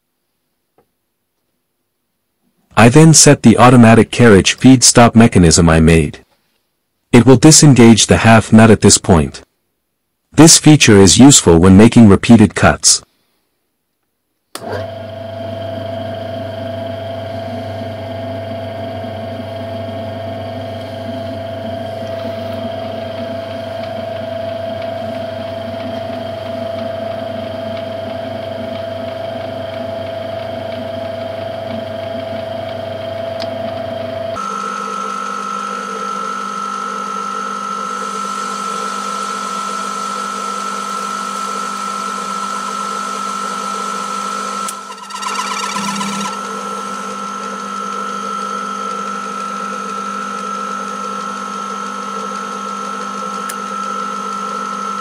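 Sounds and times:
metal lathe whining: 44.6 - 47.6.

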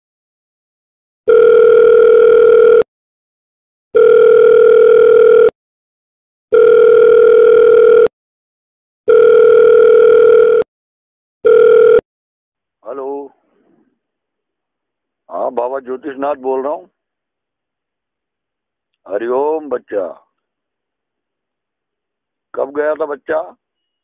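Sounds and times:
telephone ringback tone: 1.3 - 2.9, 4.0 - 5.5, 6.5 - 8.1, 9.1 - 10.7, 11.4 - 12.0.

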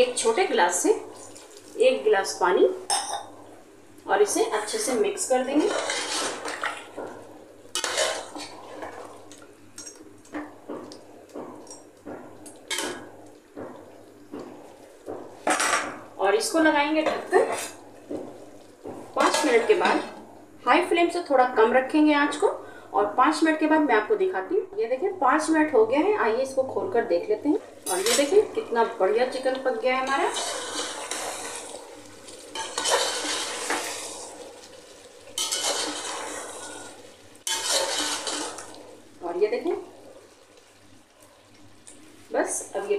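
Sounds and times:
wet gravy stirring: 1.0 - 1.8, 5.3 - 16.1, 27.6 - 39.2
ladle scraping and clinking pot: 5.6 - 6.9, 7.7 - 9.0, 30.1 - 34.3, 35.3 - 38.8.

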